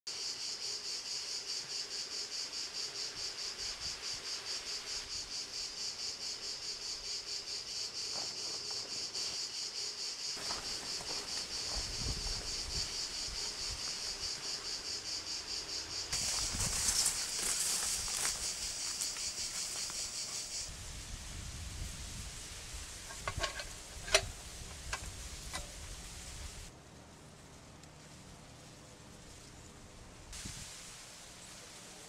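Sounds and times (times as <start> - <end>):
insects chirping: 0.1 - 26.7.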